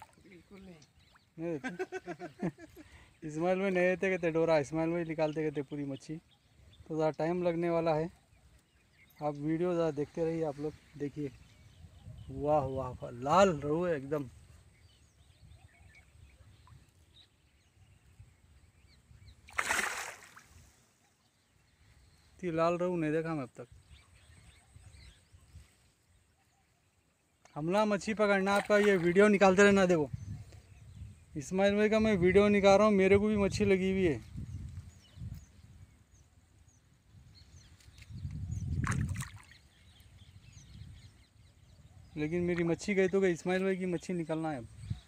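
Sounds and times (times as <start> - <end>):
faint bird chirps: 5.3 - 27.8
fish thrashing and splashing: 19.5 - 20.4.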